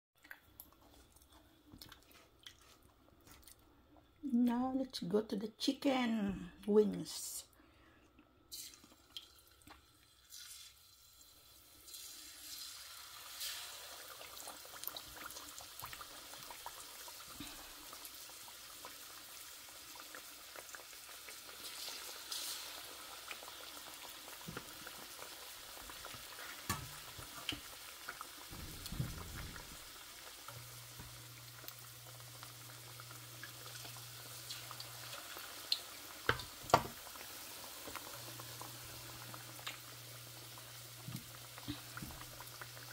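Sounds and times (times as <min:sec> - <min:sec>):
chicken frying in hot oil: 0:08.5 - 0:42.9.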